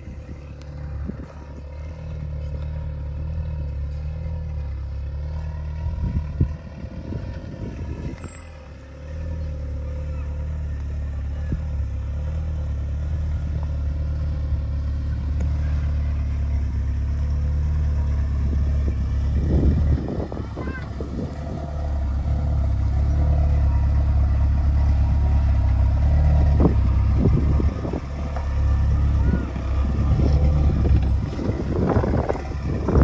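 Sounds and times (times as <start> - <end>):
off-road vehicle engine running: 0.0 - 33.0.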